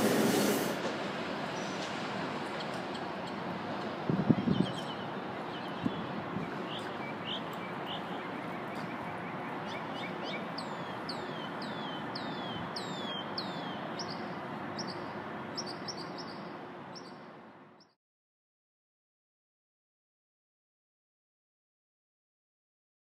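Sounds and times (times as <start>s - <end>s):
city background noise: 0.0s - 18.0s
birds chirping: 2.5s - 18.0s.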